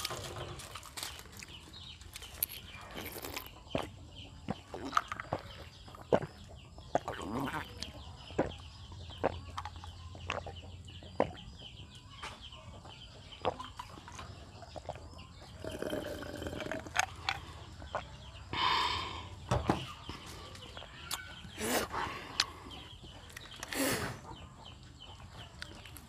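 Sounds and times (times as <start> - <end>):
person gulping a drink: 4.5 - 10.5, 14.8 - 18.9.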